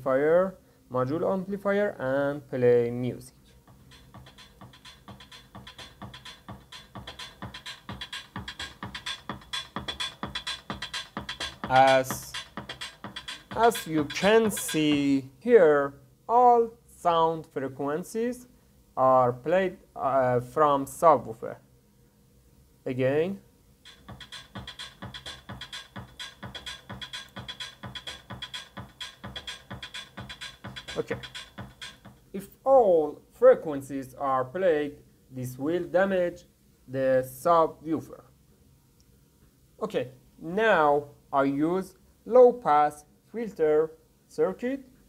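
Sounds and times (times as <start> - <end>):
electronic dance music through subwoofer: 3.6 - 15.3, 23.8 - 32.2.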